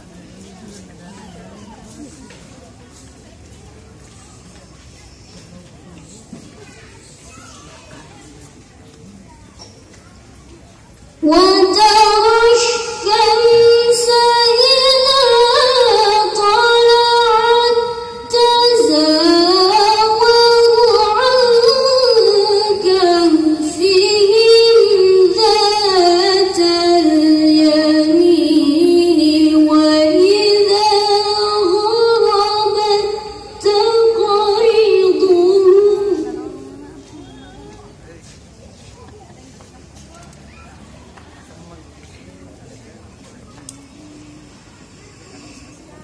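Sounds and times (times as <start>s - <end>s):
girl reciting melodically: 11.2s - 37.8s.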